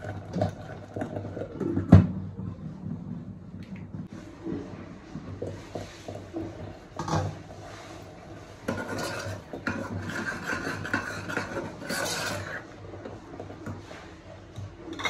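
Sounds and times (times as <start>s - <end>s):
spoon scraping a pot: 4.6s - 14.1s.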